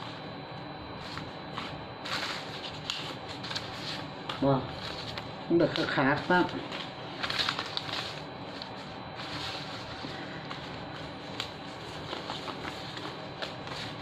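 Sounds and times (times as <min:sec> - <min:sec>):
banknotes rustling and flicking: 0:01.0 - 0:14.0
plastic bag crinkling: 0:07.2 - 0:08.3.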